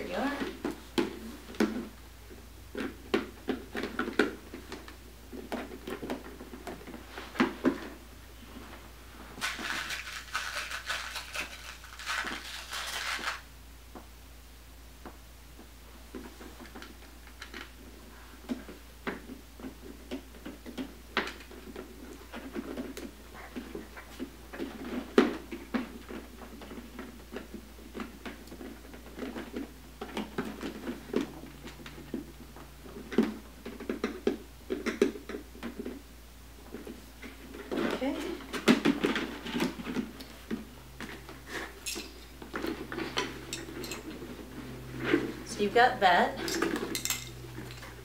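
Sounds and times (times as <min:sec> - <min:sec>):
plastic parts clicking and rustling: 0:09.4 - 0:13.4, 0:36.7 - 0:44.4, 0:46.4 - 0:48.0.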